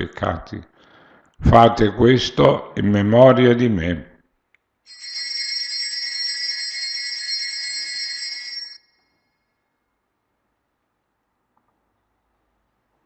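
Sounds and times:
small bells ringing: 0:04.9 - 0:09.2.

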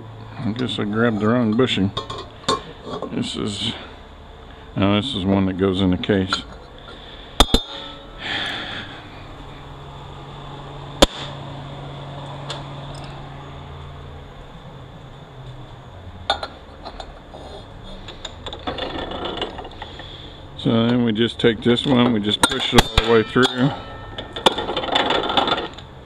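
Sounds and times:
metal parts clicking and clinking: 0:12.5 - 0:13.2, 0:21.8 - 0:25.9.

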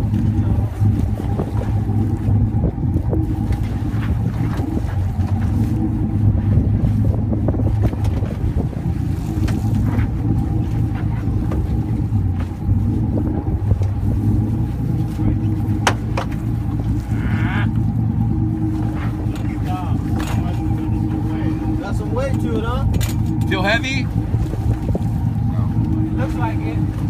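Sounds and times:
boat engine humming: 0:00.0 - 0:27.0
gear clicking and knocking: 0:22.2 - 0:23.8.

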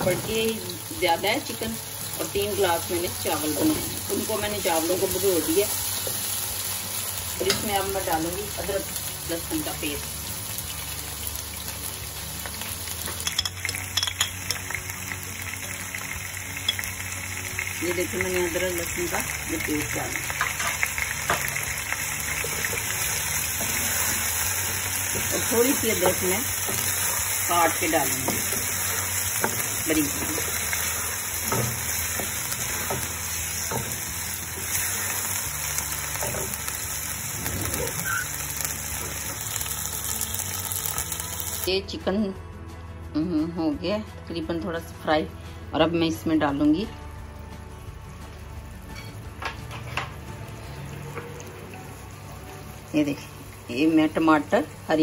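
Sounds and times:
chicken frying in oil: 0:00.8 - 0:41.7.

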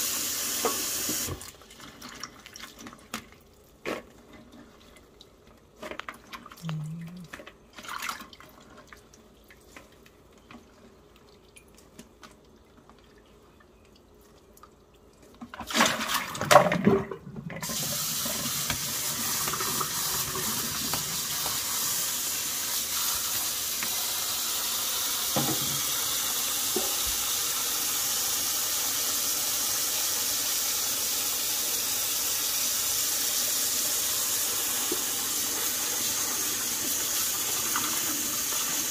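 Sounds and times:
tap water running into sink: 0:00.0 - 0:02.6, 0:15.6 - 0:38.9.

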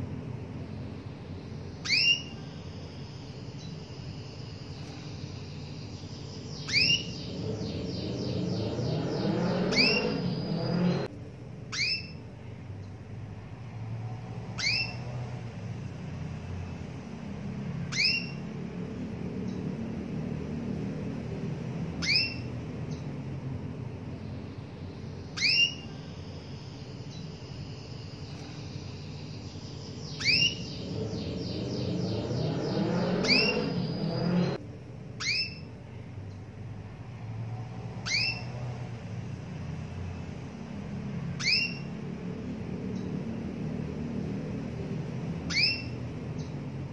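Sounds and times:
canary trill: 0:00.0 - 0:46.9
low background hum: 0:00.0 - 0:46.9.

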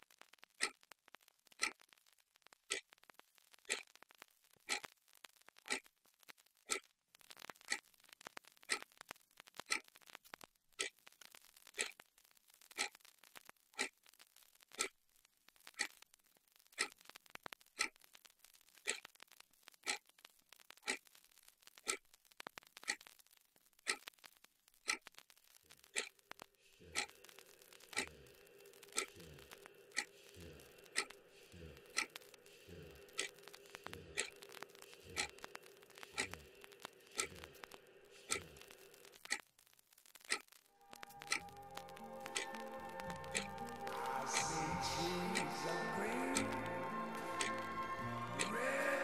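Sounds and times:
clock ticking: 0:00.0 - 0:05.9, 0:06.6 - 0:09.0, 0:09.6 - 0:10.1, 0:10.7 - 0:12.0, 0:12.6 - 0:13.1, 0:13.7 - 0:15.0, 0:15.6 - 0:16.0, 0:16.7 - 0:18.1, 0:18.7 - 0:19.2, 0:19.8 - 0:23.2, 0:23.8 - 0:49.0
faint small clicks: 0:01.5 - 0:28.1.

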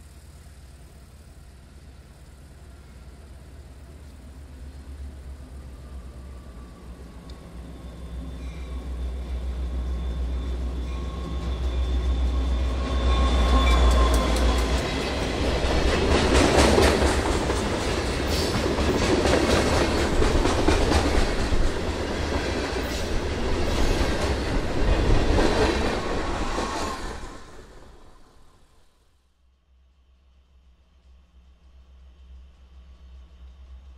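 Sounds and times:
diesel locomotive engine rumble: 0:00.0 - 0:28.9, 0:29.8 - 0:33.9.

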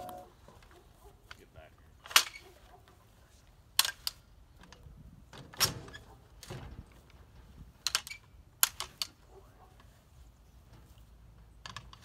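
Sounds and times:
sharp clicks and knocks: 0:03.8 - 0:09.2.

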